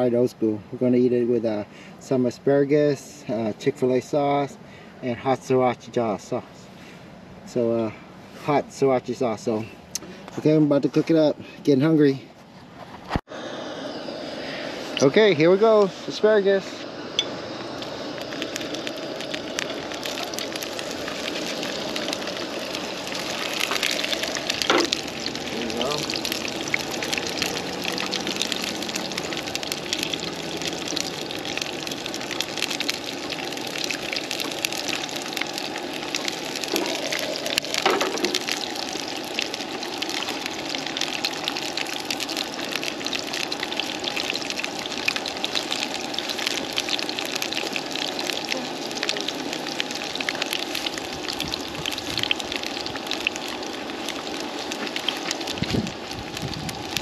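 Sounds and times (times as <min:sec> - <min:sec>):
vegetables sizzling in oil: 0:13.8 - 0:57.0.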